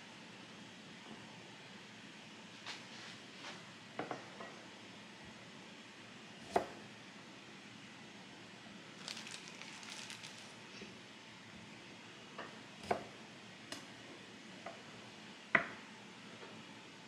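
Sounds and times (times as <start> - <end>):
plastic bag crinkling: 9.0 - 10.6.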